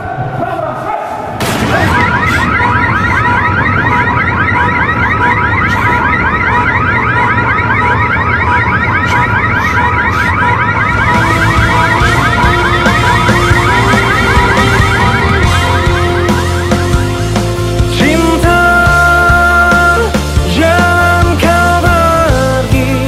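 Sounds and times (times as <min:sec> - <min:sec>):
fast warbling siren: 0:01.4 - 0:19.5.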